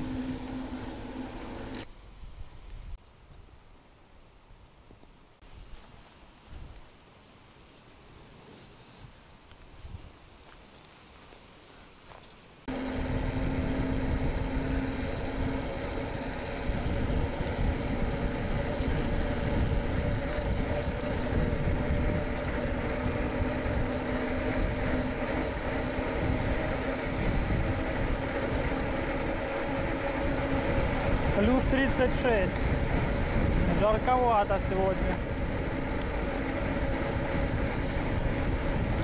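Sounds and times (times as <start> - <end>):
bicycle tyre rumble: 0.0 - 3.0, 12.1 - 39.0
wind rushing over microphone: 12.9 - 39.0.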